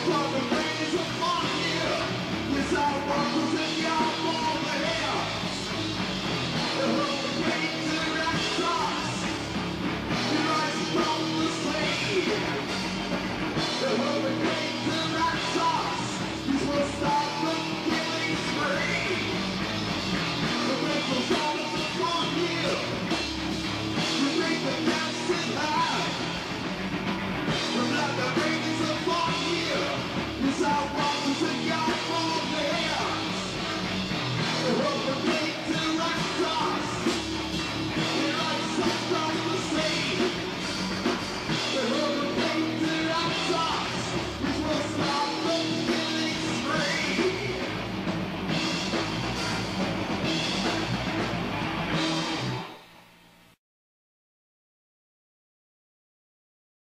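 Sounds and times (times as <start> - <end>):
person singing: 0.0 - 5.6, 6.6 - 9.2, 34.6 - 37.1, 38.0 - 40.5, 41.6 - 47.8
live rock band playing: 0.0 - 53.0
drum kit: 0.0 - 53.6.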